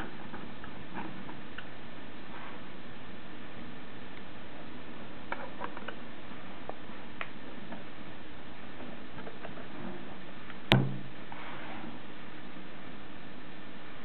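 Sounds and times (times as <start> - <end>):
loud knock: 10.7 - 11.0.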